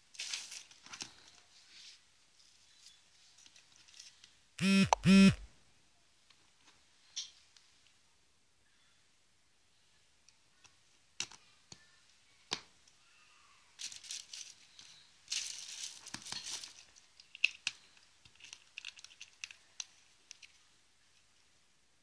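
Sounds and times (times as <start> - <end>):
plastic bag crinkling: 13.8 - 17.6.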